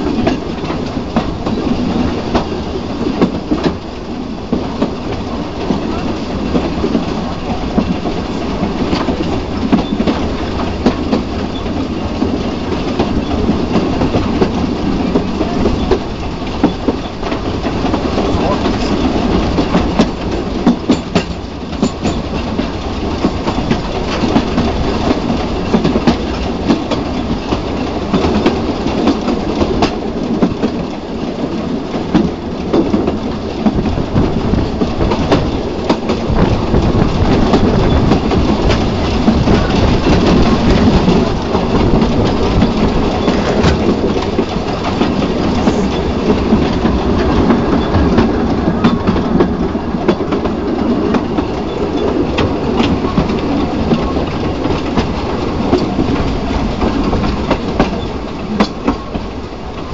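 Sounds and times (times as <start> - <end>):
steam train rumble: 0.0 - 59.9
wheels clicking over rail joints: 0.0 - 59.9.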